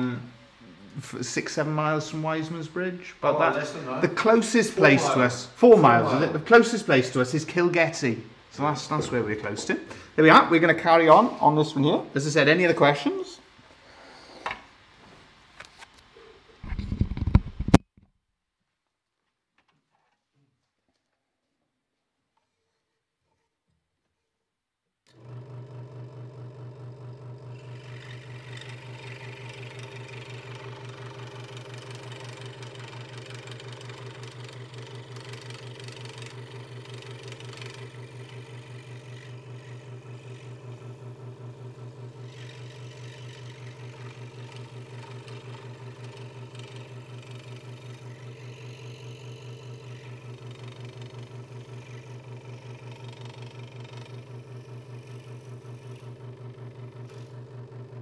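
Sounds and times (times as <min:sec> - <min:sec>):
scroll saw humming: 0:25.1 - 0:58.0.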